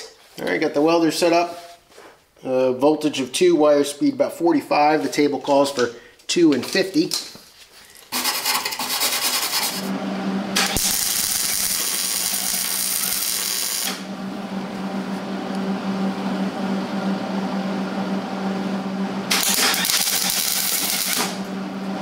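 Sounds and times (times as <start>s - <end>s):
low hum: 9.8s - 22.0s
welding arc crackling: 10.6s - 14.0s, 19.3s - 21.4s
welder click: 19.3s - 21.4s.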